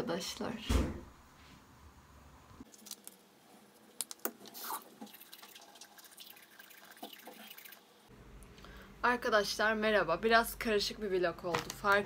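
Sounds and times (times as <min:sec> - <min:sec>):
water dripping in sink: 0:05.0 - 0:07.8.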